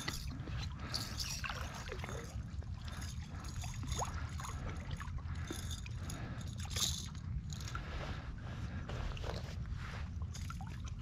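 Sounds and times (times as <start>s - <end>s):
shallow water sloshing and splashing: 0.0s - 11.0s.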